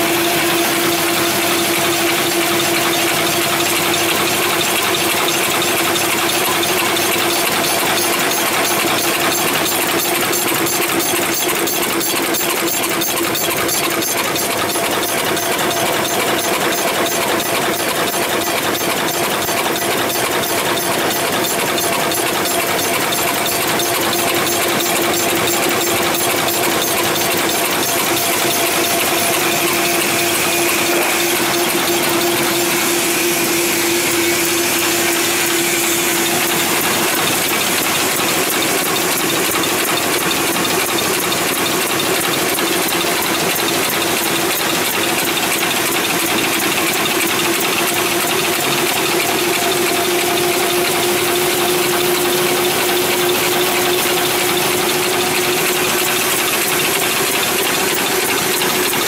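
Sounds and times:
folding machine clatter: 0.2s - 59.0s
machine hum: 12.9s - 40.3s, 48.1s - 59.0s.

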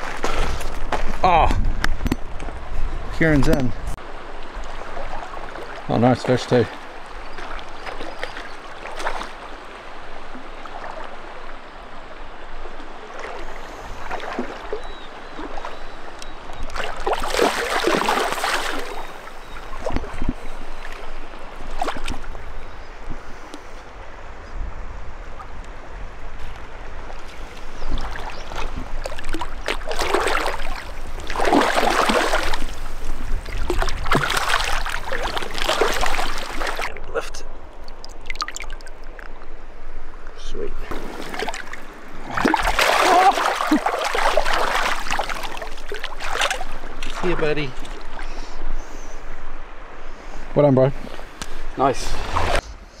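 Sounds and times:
river water running: 0.0s - 52.9s
fish splashing at surface: 40.9s - 47.2s.

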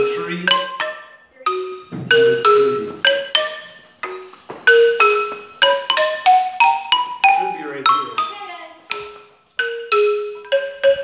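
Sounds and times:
marimba played with mallets: 0.0s - 11.0s.

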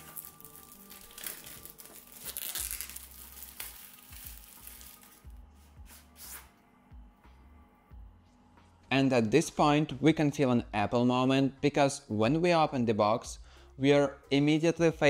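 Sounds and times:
plastic wrap crinkling: 0.0s - 5.3s.

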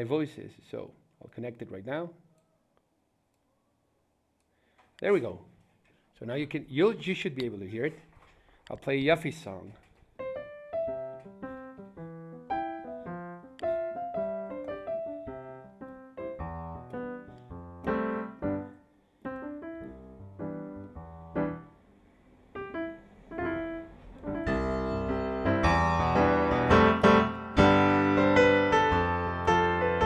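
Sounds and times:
piano tune with chords: 10.2s - 21.9s, 22.5s - 30.0s.

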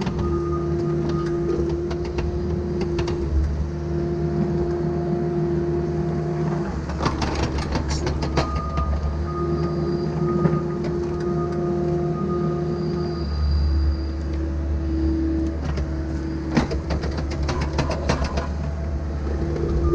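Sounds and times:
excavator diesel engine: 0.0s - 19.9s
hydraulic whine: 0.0s - 19.9s.

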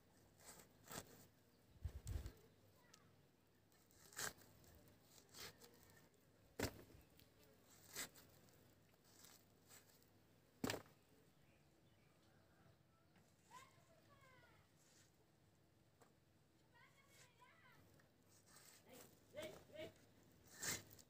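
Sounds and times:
gourd being sliced on blade: 3.9s - 4.5s.

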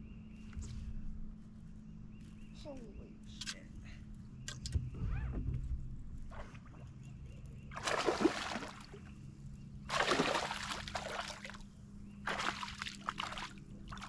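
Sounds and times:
fish splashing at surface: 7.8s - 9.0s, 9.9s - 11.6s, 12.3s - 14.0s.

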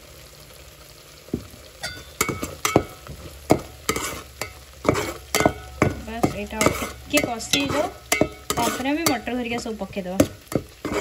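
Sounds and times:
paste sizzling: 1.1s - 11.0s
metal spatula scraping a pot: 3.5s - 11.0s.

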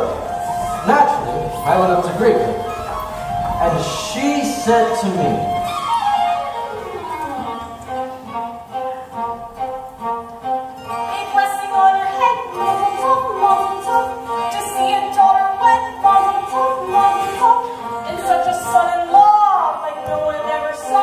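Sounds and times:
instrumental accompaniment: 0.0s - 21.0s
girl singing with vibrato: 10.9s - 21.0s.

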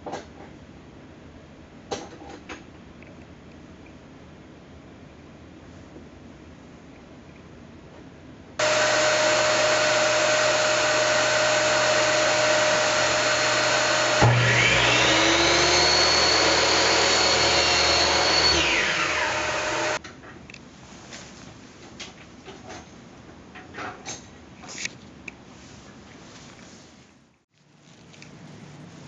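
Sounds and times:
loud steady machine noise: 8.6s - 20.0s
miter saw motor whine: 8.6s - 20.0s.

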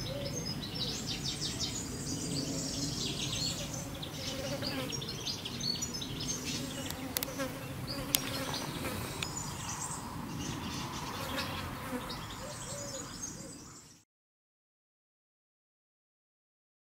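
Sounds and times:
flying insects buzzing: 2.5s - 12.4s.

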